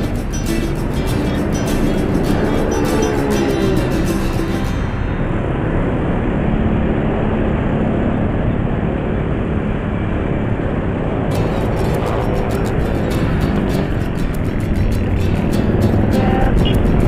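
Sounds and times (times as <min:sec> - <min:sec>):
background music: 0:00.0 - 0:05.5, 0:11.3 - 0:17.0
motorcycle engine running: 0:00.0 - 0:06.8, 0:11.3 - 0:17.0
road and traffic noise: 0:00.0 - 0:17.0.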